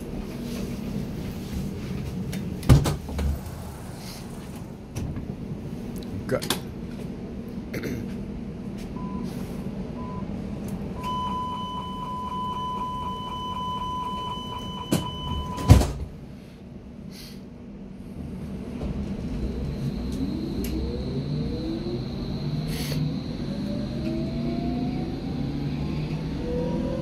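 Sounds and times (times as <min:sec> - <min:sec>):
train running rumble: 0:00.0 - 0:11.0, 0:14.9 - 0:27.0
sliding doors shutting with thud: 0:02.6 - 0:05.4, 0:14.8 - 0:16.2
steady warning tone: 0:11.0 - 0:15.7, 0:19.3 - 0:27.0
short beeps: 0:11.0 - 0:15.8.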